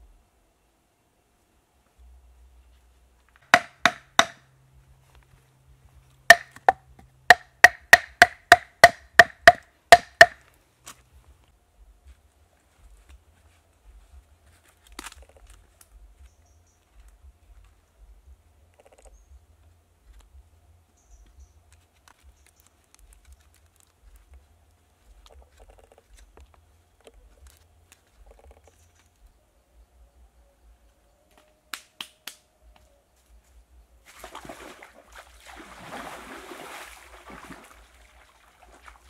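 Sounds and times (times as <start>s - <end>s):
steady low rumble: 1.8s - 3.4s, 10.5s - 31.1s
fibre rustling and clicking: 21.6s - 29.2s.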